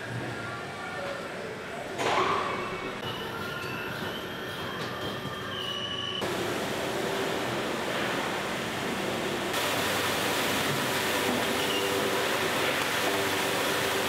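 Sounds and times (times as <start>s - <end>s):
roller conveyors running: 2.7s - 14.0s
brush crate washer running: 6.2s - 14.0s.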